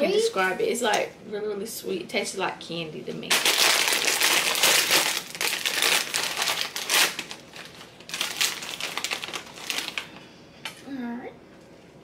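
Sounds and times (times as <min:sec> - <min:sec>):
chip bag crinkling: 0:03.3 - 0:10.2.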